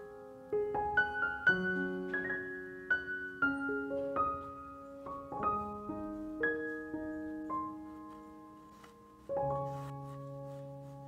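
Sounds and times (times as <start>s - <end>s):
soft piano music: 0.0s - 11.0s.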